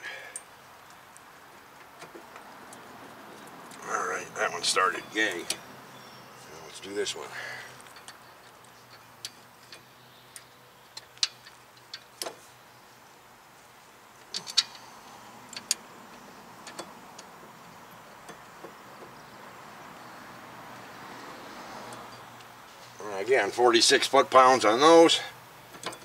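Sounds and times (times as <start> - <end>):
sharp metal clicks and taps: 7.8 - 12.4, 14.2 - 14.9, 15.5 - 15.8, 16.6 - 17.4.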